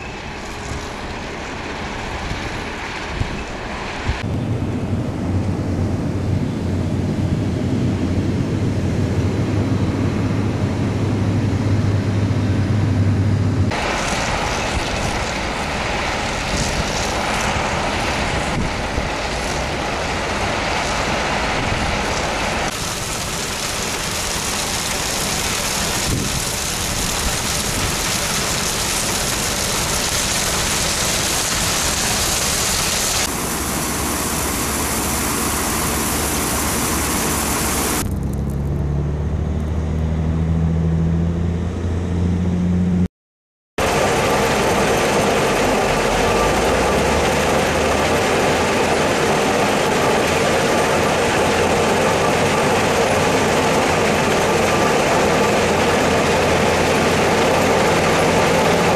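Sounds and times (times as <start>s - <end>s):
noisy machine rushing: 0.0s - 43.1s, 43.8s - 58.9s
crushed ore pouring off conveyor: 13.8s - 33.3s.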